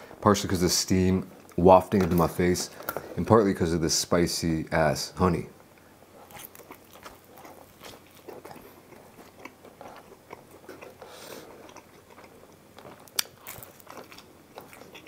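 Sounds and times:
chewing with wet mouth sounds: 0:06.1 - 0:15.0
crust crunching: 0:06.2 - 0:11.0, 0:11.6 - 0:15.0.

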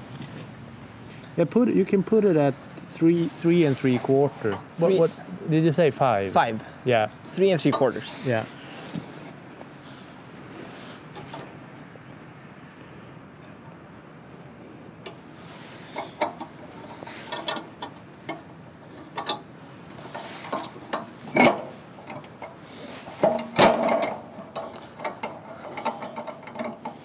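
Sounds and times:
metal scraping: 0:02.9 - 0:05.5, 0:07.1 - 0:11.6, 0:15.1 - 0:27.0
metal clicks and knocks: 0:16.0 - 0:27.0.

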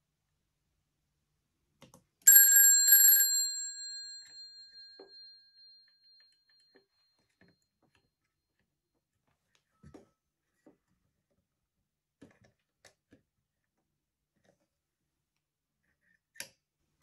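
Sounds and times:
telephone bells ringing: 0:02.3 - 0:06.6.

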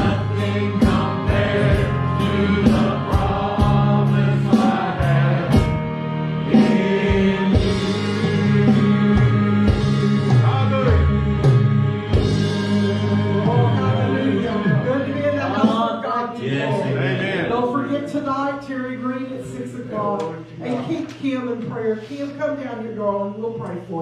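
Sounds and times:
drums keeping a steady beat: 0:00.0 - 0:16.1
singers with microphones: 0:00.0 - 0:18.1
keyboard: 0:00.0 - 0:24.0.

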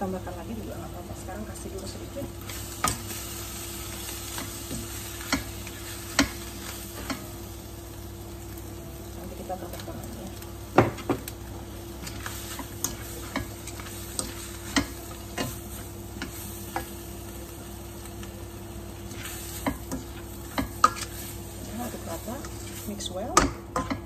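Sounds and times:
low sizzle: 0:00.0 - 0:24.0
spatula scraping a wok: 0:12.0 - 0:17.0, 0:19.0 - 0:23.2.

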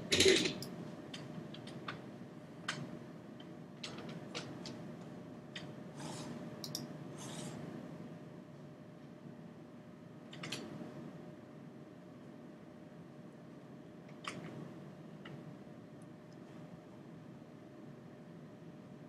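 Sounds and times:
faint steady hum: 0:00.0 - 0:19.0
computer mouse clicks: 0:06.6 - 0:06.9.

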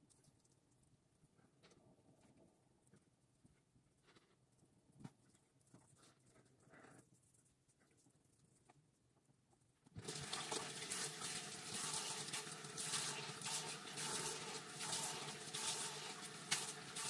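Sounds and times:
tap water running into sink: 0:10.0 - 0:17.0.

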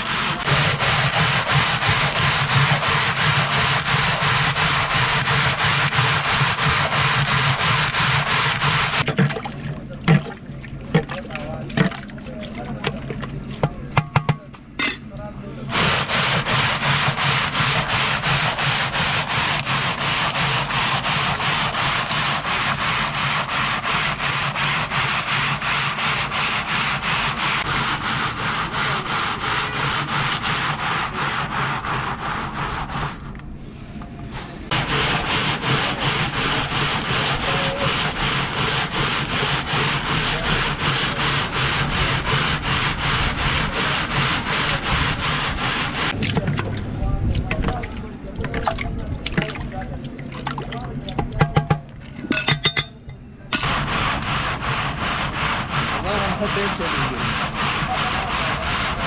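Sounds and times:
rhythmic rasping scraping: 0:00.0 - 0:15.0, 0:15.7 - 0:33.2, 0:34.7 - 0:46.2, 0:49.3 - 0:59.0.

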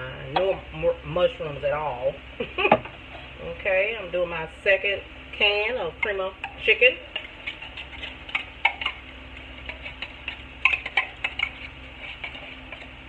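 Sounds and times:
spoon scraping inside tin can: 0:07.1 - 0:13.0.

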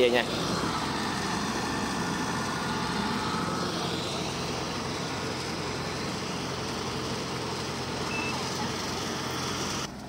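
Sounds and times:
harvester engines running: 0:00.0 - 0:10.0.

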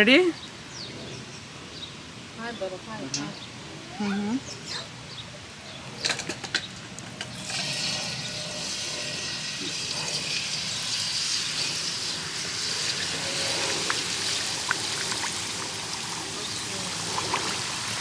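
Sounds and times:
hot oil sizzling: 0:07.2 - 0:18.0.

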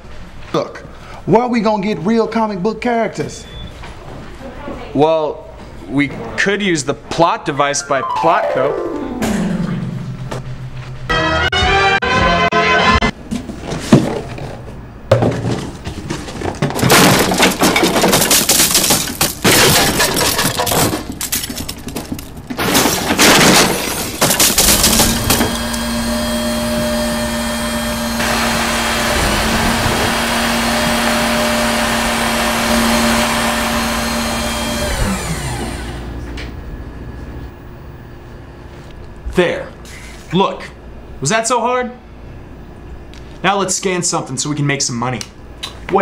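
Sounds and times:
crashing and breaking impacts: 0:15.2 - 0:25.6
electric drill running: 0:25.1 - 0:36.0.

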